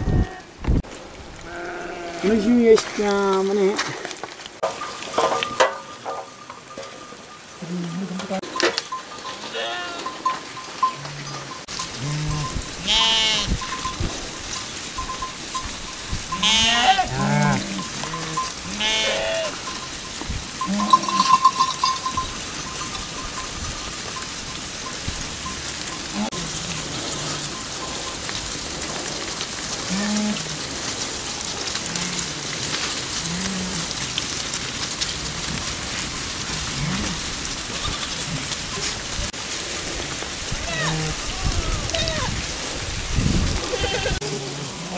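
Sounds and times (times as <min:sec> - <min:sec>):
sheep bleating: 0:01.4 - 0:02.5, 0:09.4 - 0:10.2, 0:12.0 - 0:13.6, 0:16.3 - 0:19.6, 0:40.6 - 0:42.3, 0:43.7 - 0:44.9.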